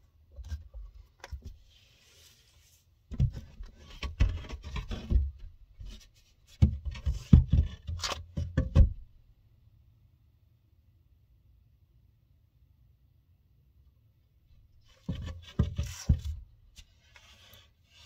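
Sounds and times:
knocks and scrapes on wood: 0.3 - 9.1, 14.8 - 18.0.

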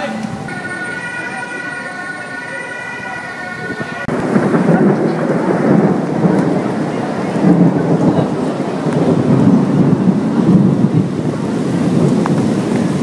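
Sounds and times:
steady high tone: 0.0 - 4.2
rain: 0.0 - 13.0
rolling thunder: 0.3 - 13.0.

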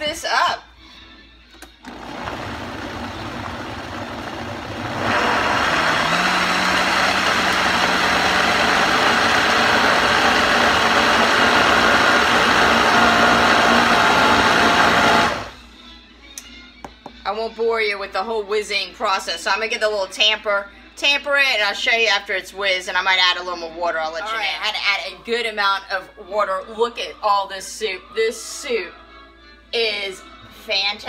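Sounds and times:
blender motor running: 1.8 - 15.6.

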